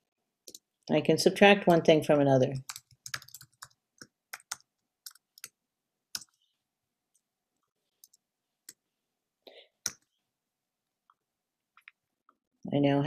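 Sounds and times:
computer keyboard clicks: 2.6s - 5.6s.

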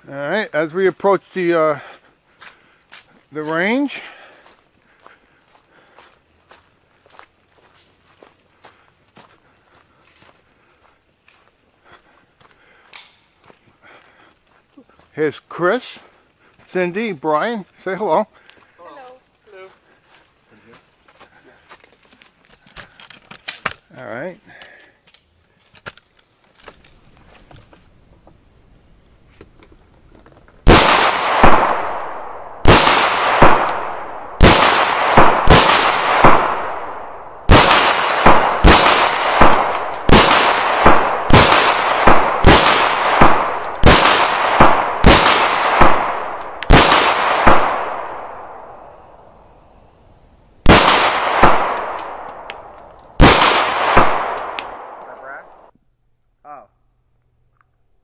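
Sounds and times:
handgun shots ringing: 30.7s - 48.8s.

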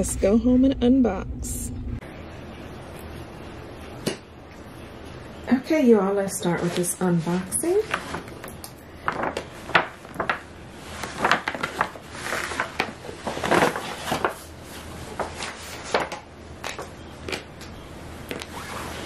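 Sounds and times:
paper bag rustling: 6.6s - 16.2s.

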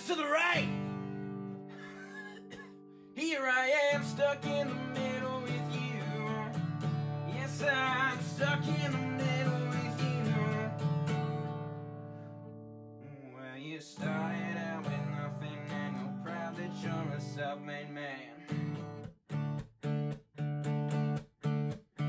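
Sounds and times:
man singing: 0.0s - 0.9s, 3.2s - 6.6s, 7.2s - 10.9s, 13.1s - 18.6s
acoustic guitar strumming: 0.0s - 13.0s, 14.0s - 22.0s.

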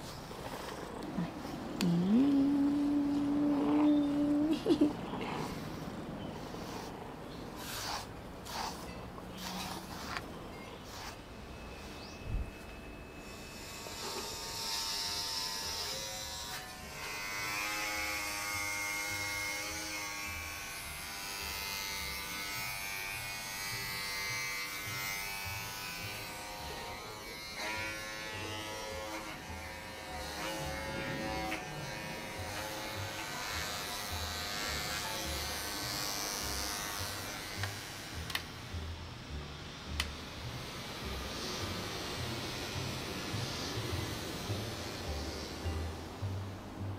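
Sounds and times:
electric hair clipper buzzing: 13.2s - 38.8s, 40.0s - 46.0s.

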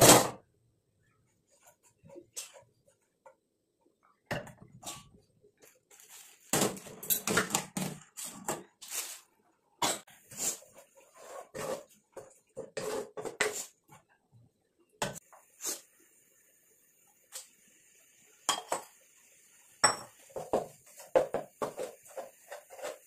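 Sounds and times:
spatula scraping in pan: 9.9s - 13.8s, 20.2s - 23.0s.

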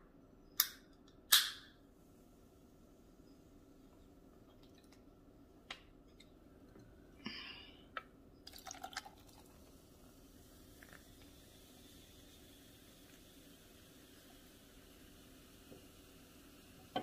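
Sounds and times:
soda fizzing hiss: 8.5s - 17.0s.

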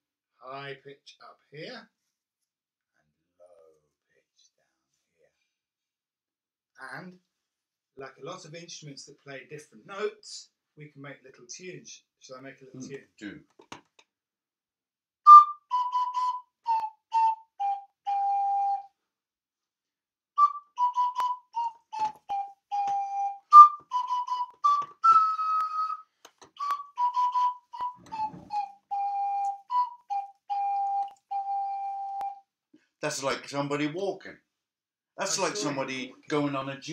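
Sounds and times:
ocarina playing a tune: 15.3s - 18.9s, 20.4s - 32.4s, 35.2s - 36.1s.

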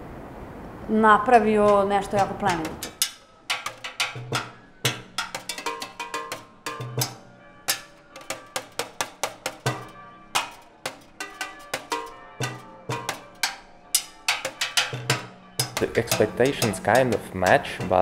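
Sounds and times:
drumsticks hitting metal can: 1.6s - 18.0s.

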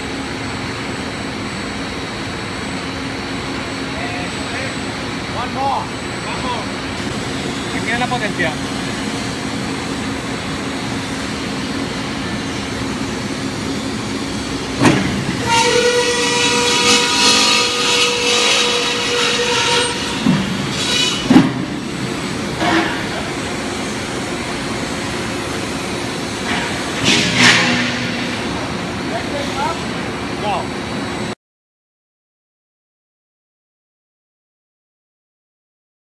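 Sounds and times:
cut-off machine running: 3.6s - 31.3s
saw blade squealing through steel pipe: 15.4s - 21.3s
bang: 27.0s - 28.4s.

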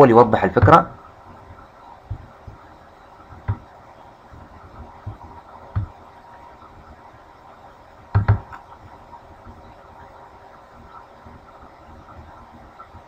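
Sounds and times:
computer mouse clicks: 8.1s - 8.8s.

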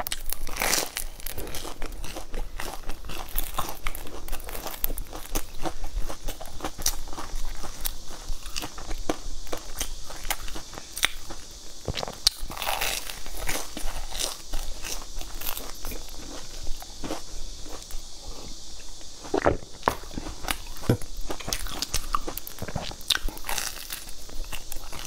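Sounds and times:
crunching fried pastry crust: 0.0s - 25.0s.

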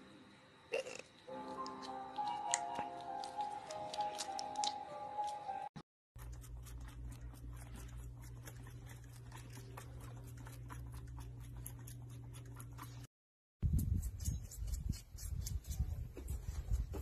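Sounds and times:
steady low hum: 6.2s - 17.0s.

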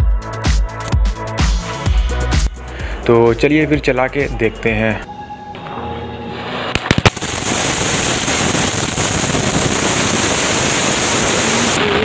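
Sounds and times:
firework cracks: 6.7s - 12.0s
firework hissing and crackling: 6.7s - 12.0s.

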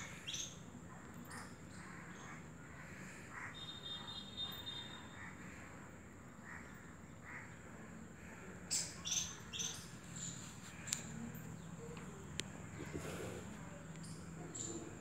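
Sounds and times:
crows cawing: 2.8s - 3.8s.

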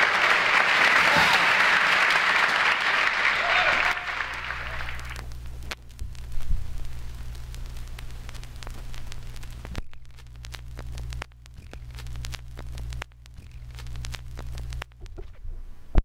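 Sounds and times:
vinyl surface hum and hiss: 0.0s - 16.0s
vinyl crackles and clicks: 3.0s - 16.0s.

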